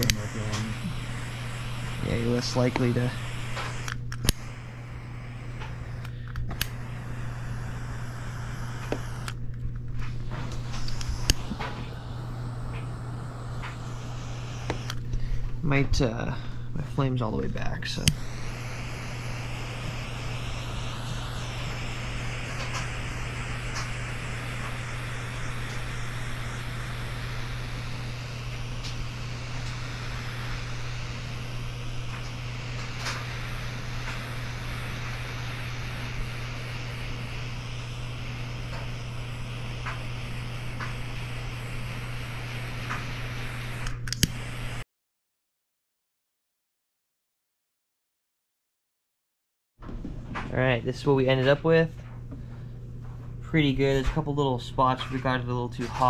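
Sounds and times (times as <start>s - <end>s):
butane torch hissing: 0.0s - 44.8s, 50.5s - 56.0s
steady low hum: 0.0s - 44.8s
sharp click: 5.6s - 6.8s, 43.8s - 44.4s.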